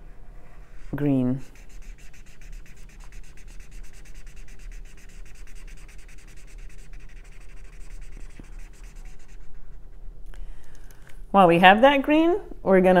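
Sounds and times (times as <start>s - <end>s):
marker scrubbing on paper: 0.5s - 10.0s.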